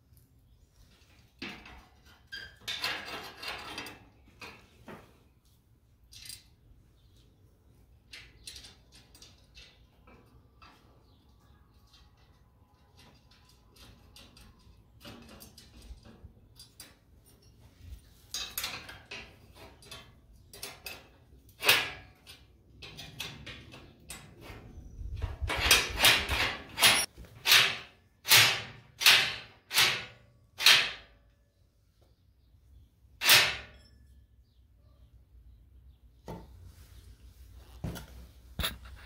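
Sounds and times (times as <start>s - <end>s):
metal tool clicks and clinks: 26.1s - 27.1s.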